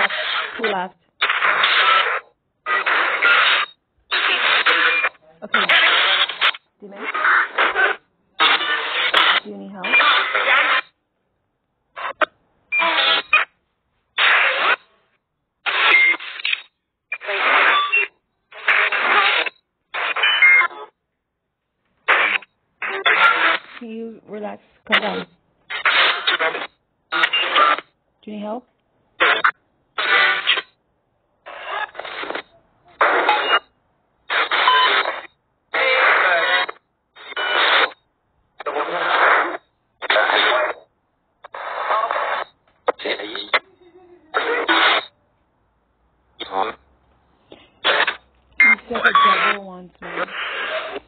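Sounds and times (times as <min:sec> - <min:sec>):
garbled voice fragments: 0:00.0 - 0:10.8, 0:22.1 - 0:27.5, 0:41.6 - 0:45.1, 0:47.8 - 0:51.0
radio static bursts: 0:00.0 - 0:11.0, 0:11.9 - 0:15.0, 0:15.6 - 0:20.9, 0:22.0 - 0:28.0, 0:29.2 - 0:30.8, 0:31.4 - 0:38.0, 0:38.6 - 0:45.2, 0:46.3 - 0:46.9, 0:47.5 - 0:51.0.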